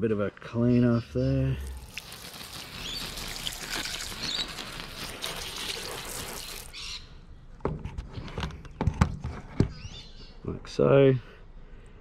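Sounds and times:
birds chirping: 0:00.0 - 0:12.0
hose spraying water on wood: 0:01.6 - 0:06.8.

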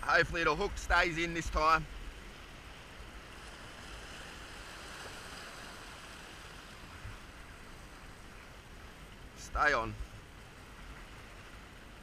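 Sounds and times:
sea surf washing over rocks: 0:00.0 - 0:12.0.

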